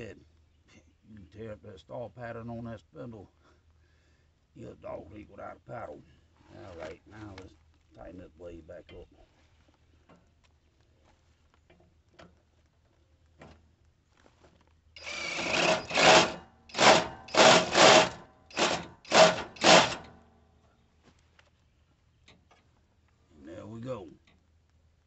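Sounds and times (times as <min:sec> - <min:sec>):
impact wrench hammering bursts: 0:15.0 - 0:20.2.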